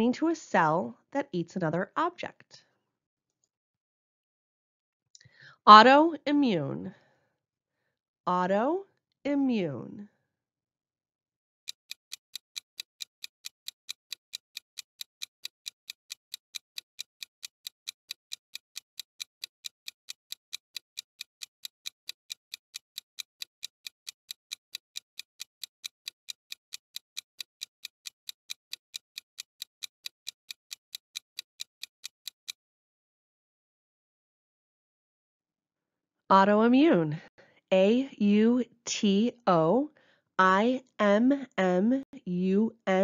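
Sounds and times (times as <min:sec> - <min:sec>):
fast clock ticking: 0:11.7 - 0:32.6.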